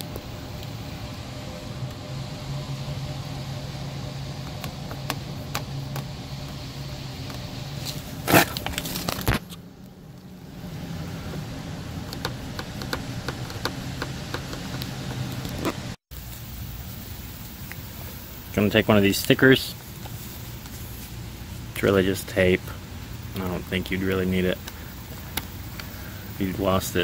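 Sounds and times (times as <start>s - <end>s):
steady low hum: 0.0s - 27.0s
loud rustling bump: 7.7s - 9.6s.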